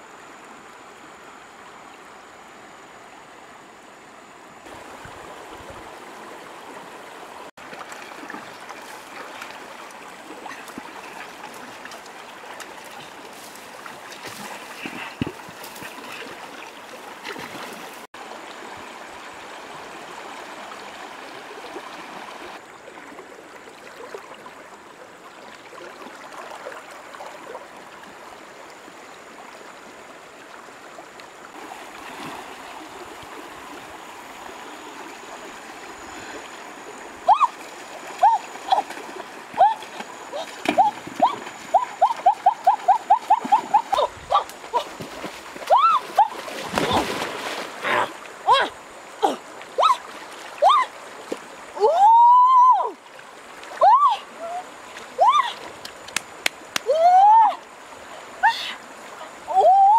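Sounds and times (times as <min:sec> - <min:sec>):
river water rushing over stones: 0:00.0 - 0:59.9
wading splashes: 0:07.6 - 0:18.7, 0:31.5 - 0:52.2
fish thrashing in water: 0:45.0 - 0:47.8.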